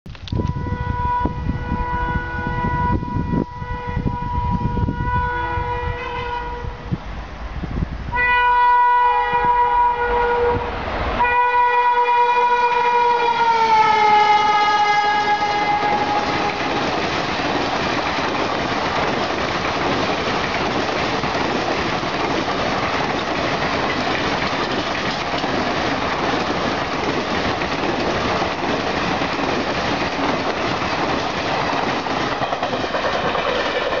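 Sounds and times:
locomotive horn blasts: 0.4s - 6.8s, 8.1s - 16.6s
train coaches rushing past: 2.2s - 34.0s.

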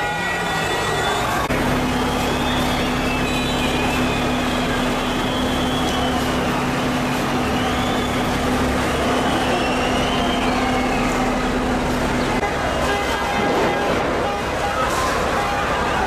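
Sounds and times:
heavy vehicle engine humming: 0.0s - 16.0s.

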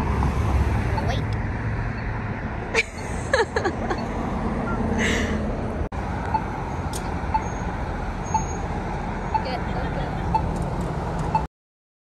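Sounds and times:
cars passing: 0.0s - 11.5s
crossing signal short beeps: 3.9s - 4.9s, 7.3s - 8.7s, 9.3s - 9.6s.

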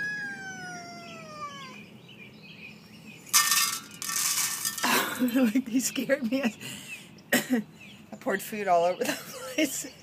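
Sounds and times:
cat meowing: 0.0s - 1.9s.

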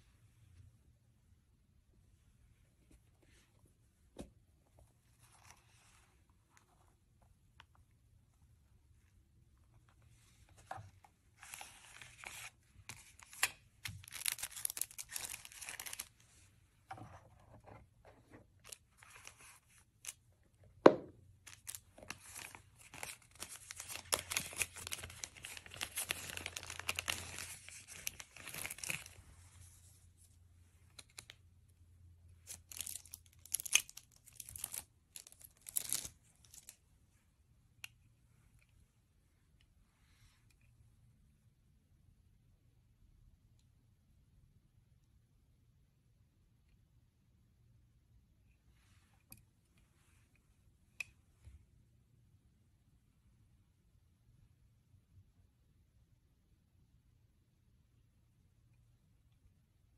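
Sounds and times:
wrapping rustling and crinkling: 11.4s - 16.4s, 21.4s - 29.9s, 32.4s - 36.8s.

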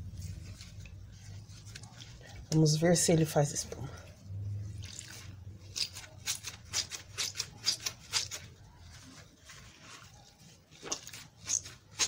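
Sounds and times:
sponge scrubbing wet soap: 4.7s - 12.0s.

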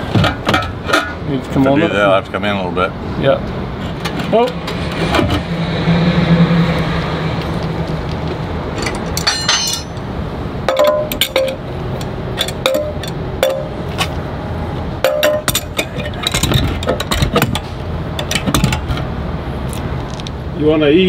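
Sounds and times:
truck engine humming: 0.0s - 20.6s
metal clinking of wrench and bolts: 8.8s - 10.0s, 10.7s - 13.7s, 15.0s - 17.6s.

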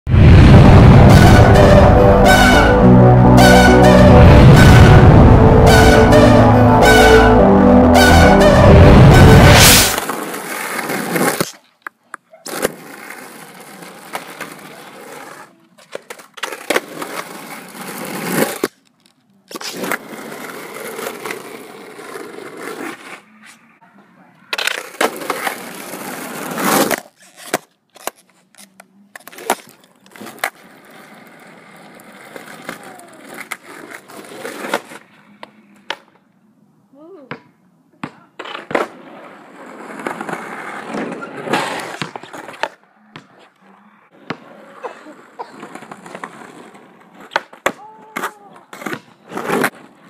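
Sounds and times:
loud intro music hit: 0.1s - 10.0s
skateboard wheels rolling on pavement: 4.6s - 36.5s, 38.0s - 50.0s
skateboard clacking on ground: 24.4s - 36.2s.

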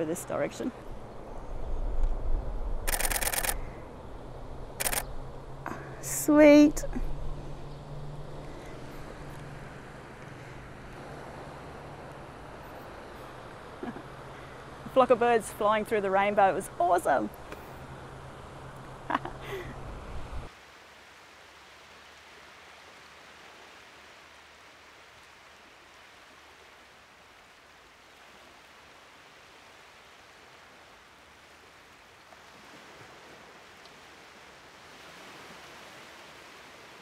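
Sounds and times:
faint steady rushing noise: 0.0s - 37.0s
low hum: 0.7s - 20.5s.

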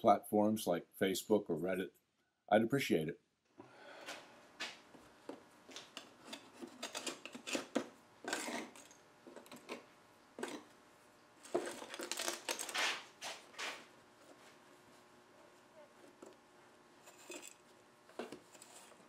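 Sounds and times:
tool scraping wood: 5.0s - 10.8s, 11.4s - 15.1s, 17.0s - 19.0s.

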